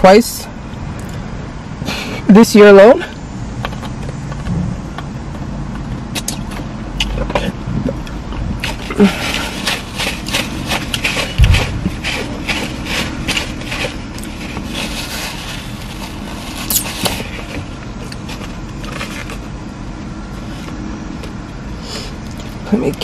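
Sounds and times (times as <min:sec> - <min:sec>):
steady low hum: 0:00.0 - 0:23.0
paper napkin rustling: 0:08.6 - 0:17.6
loud low thump: 0:11.4 - 0:12.0.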